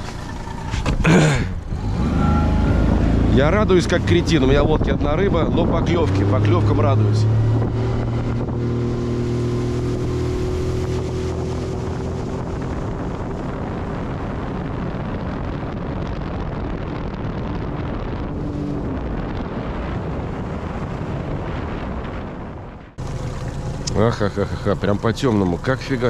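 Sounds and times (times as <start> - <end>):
outboard motor running: 0.0 - 5.4, 6.0 - 14.7, 23.0 - 26.0
wind on microphone: 0.0 - 23.9
water rushing: 23.0 - 26.0.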